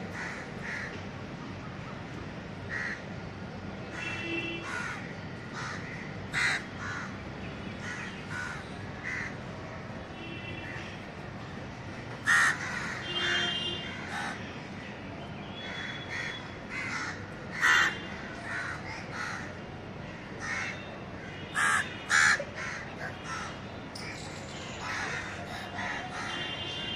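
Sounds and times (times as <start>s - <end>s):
crows cawing: 0.1s - 1.0s, 2.7s - 3.0s, 3.9s - 7.2s, 7.8s - 9.4s, 12.2s - 14.4s, 15.6s - 23.6s, 24.8s - 26.4s.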